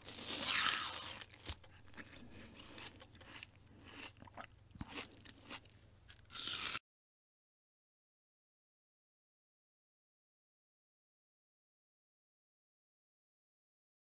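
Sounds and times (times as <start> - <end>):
crunchy watermelon bite: 0.0 - 6.8.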